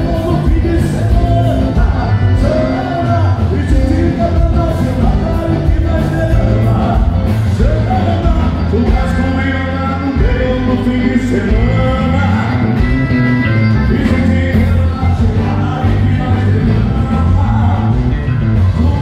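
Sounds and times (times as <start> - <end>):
accordion: 0.0 - 19.0
electric bass line: 0.0 - 19.0
man singing: 0.0 - 19.0.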